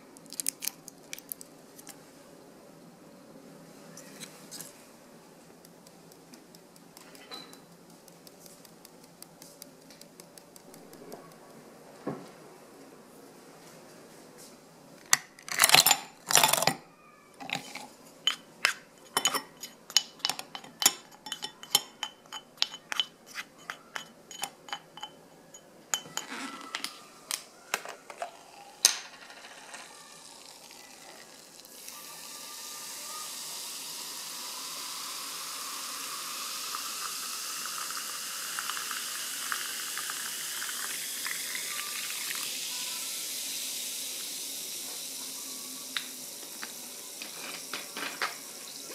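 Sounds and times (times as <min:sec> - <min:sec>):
ice cubes clinking in glass: 0:15.4 - 0:16.8, 0:28.1 - 0:30.8
sparkling water pouring: 0:28.1 - 0:48.9
bubbles fizzing: 0:33.3 - 0:45.2.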